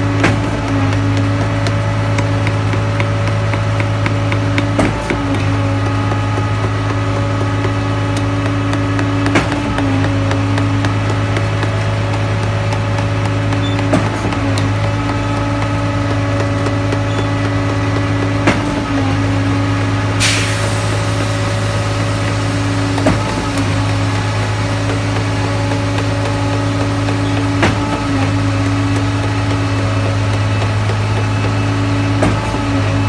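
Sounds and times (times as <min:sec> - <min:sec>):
diesel engine humming: 0:00.0 - 0:33.0
air hiss: 0:20.2 - 0:21.7.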